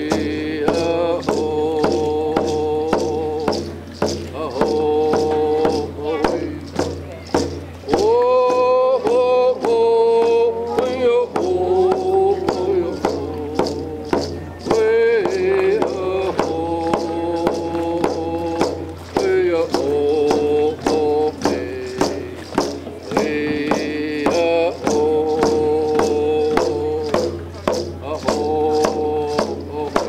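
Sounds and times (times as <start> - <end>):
hand drum beating: 0.0 - 30.0
man singing: 0.0 - 30.0.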